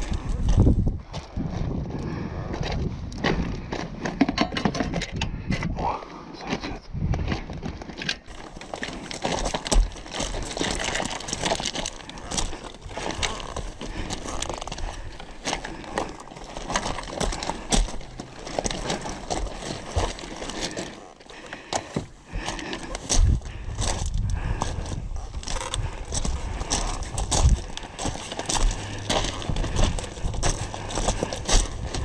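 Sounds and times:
boots crunching on gravel: 0:08.3 - 0:32.0.

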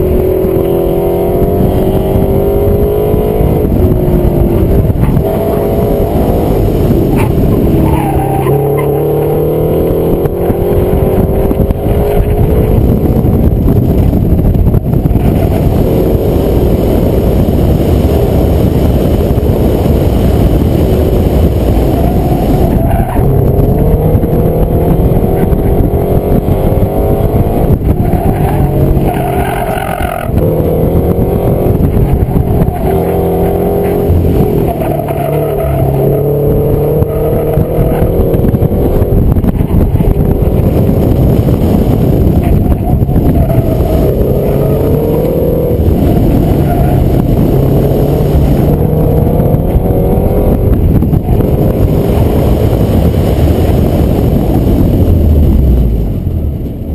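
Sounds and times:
car engine revving: 0:00.0 - 0:56.9
tyre squeal: 0:07.2 - 0:09.0.

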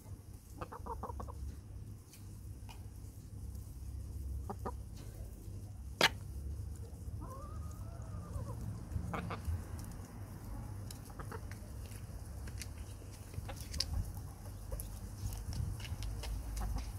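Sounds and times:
hens clucking: 0:00.4 - 0:01.6, 0:04.2 - 0:12.3, 0:12.9 - 0:16.9.

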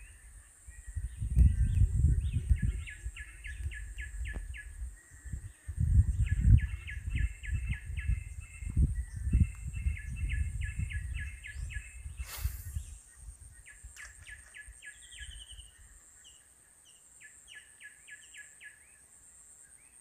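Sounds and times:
small birds chirping: 0:00.0 - 0:20.0
short hiss: 0:12.2 - 0:13.0.

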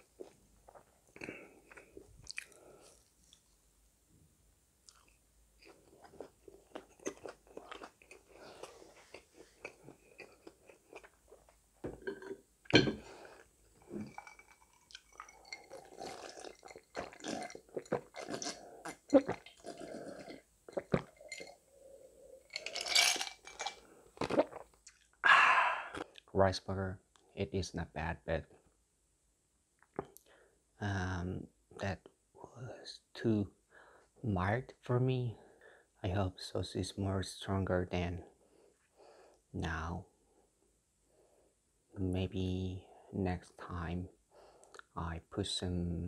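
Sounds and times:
chewing and crunching food: 0:00.1 - 0:03.4, 0:04.8 - 0:12.2, 0:13.0 - 0:21.6
person gulping a drink: 0:00.2 - 0:03.0, 0:11.8 - 0:21.6, 0:22.2 - 0:26.3
ice rattling in glass: 0:14.0 - 0:17.6, 0:22.5 - 0:23.8.

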